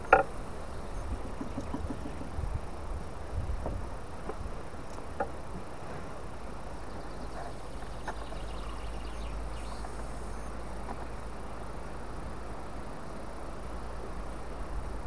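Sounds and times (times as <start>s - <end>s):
faint bird chirps: 0.0s - 2.5s, 6.8s - 11.3s
steady low rumble: 0.0s - 15.0s.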